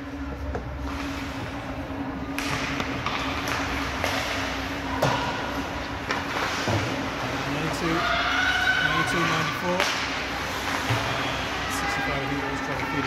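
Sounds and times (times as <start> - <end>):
steady hum: 0.0 - 13.0
sticks and puck clacking: 2.4 - 4.4, 9.8 - 11.1.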